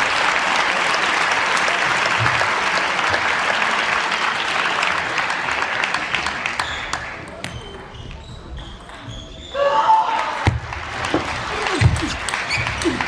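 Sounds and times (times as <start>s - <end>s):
crowd applauding: 0.0s - 7.3s, 10.1s - 13.0s.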